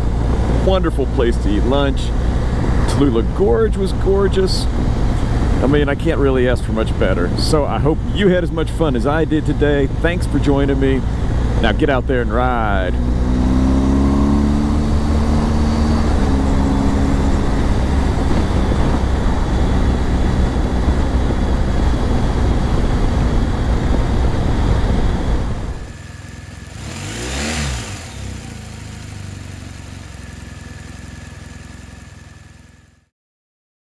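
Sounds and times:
motorcycle engine drone: 0.0s - 33.1s
vehicle passing by: 12.4s - 25.9s
wind rush: 13.0s - 25.9s.

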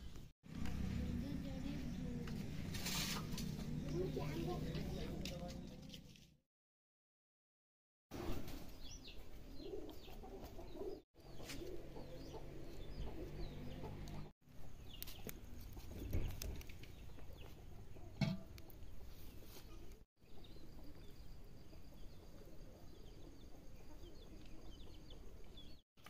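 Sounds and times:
yard background noise: 0.0s - 6.4s, 8.1s - 25.8s
chickens clucking: 9.3s - 14.3s.

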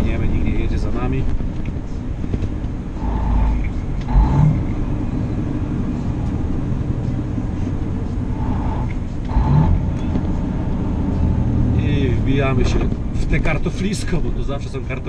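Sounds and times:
truck engine and tyres rumbling: 0.0s - 15.0s
heavy thumps: 12.5s - 13.6s.

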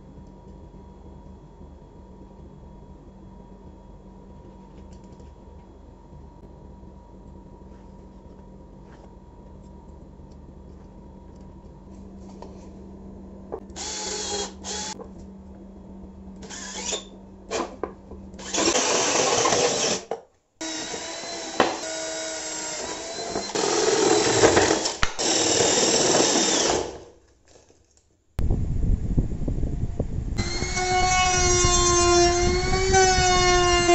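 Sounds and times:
drill cutting plywood: 13.8s - 15.0s, 16.4s - 17.1s, 18.4s - 27.1s, 30.4s - 33.9s.

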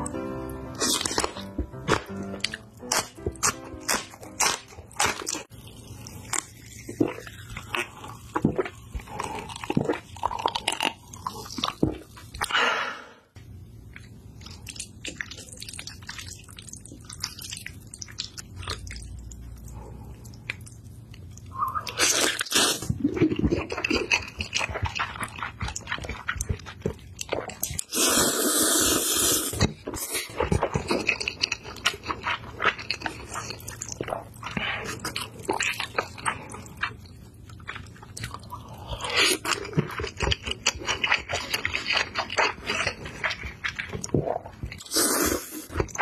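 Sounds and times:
crunching and chewing: 0.8s - 12.6s, 13.8s - 28.2s, 29.3s - 46.0s
slurping noodles: 21.5s - 26.5s, 27.4s - 36.9s, 38.4s - 46.0s.

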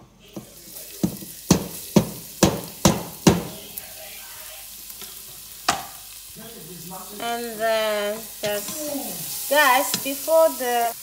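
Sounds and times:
garlic sizzling in oil: 0.1s - 11.0s
cutting board knocking on pot: 1.0s - 3.6s, 5.7s - 6.0s.

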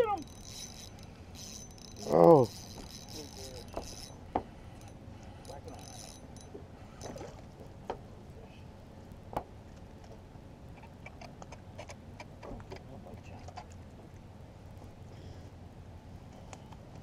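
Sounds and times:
wind and water rumble: 0.0s - 17.0s
fishing tackle clicking and knocking: 0.2s - 4.2s.

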